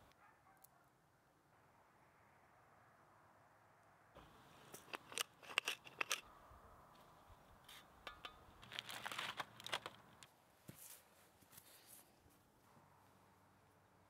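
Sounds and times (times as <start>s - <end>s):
pepper mill grinding: 4.6s - 6.2s
aluminium foil crinkling: 7.7s - 10.3s.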